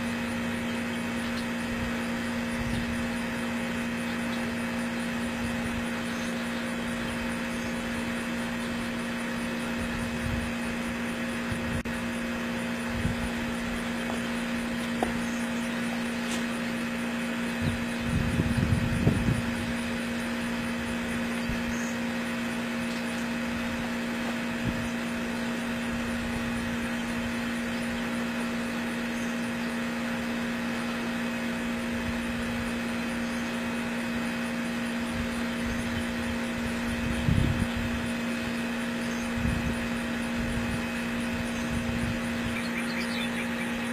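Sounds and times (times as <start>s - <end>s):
steady low hum and hiss: 0.0s - 43.9s.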